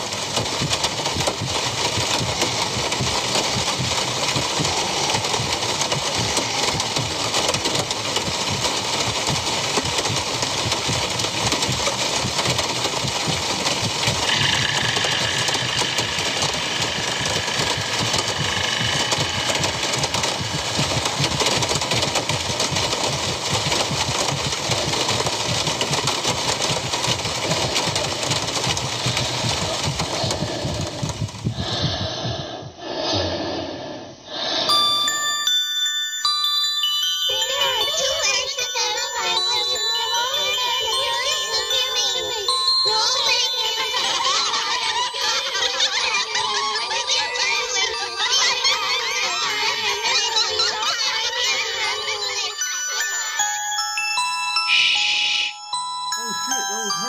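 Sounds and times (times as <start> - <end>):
harsh rattling noise: 0.0 - 32.8, 37.0 - 53.5
faint high tone: 54.5 - 57.0.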